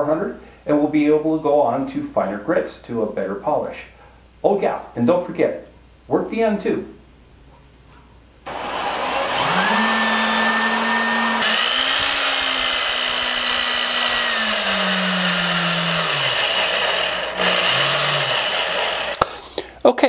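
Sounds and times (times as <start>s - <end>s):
electric drill motor running: 8.5s - 19.4s.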